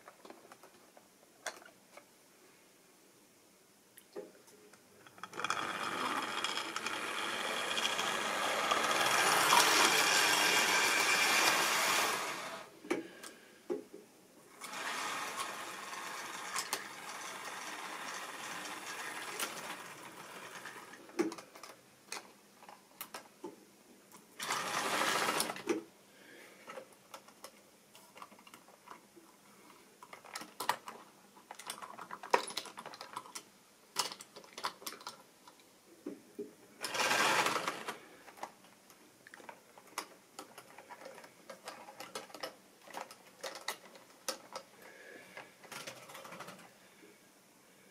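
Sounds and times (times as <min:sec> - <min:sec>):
model train motor whirring: 0:05.2 - 0:12.7, 0:14.6 - 0:21.0, 0:24.4 - 0:25.7, 0:36.8 - 0:38.0.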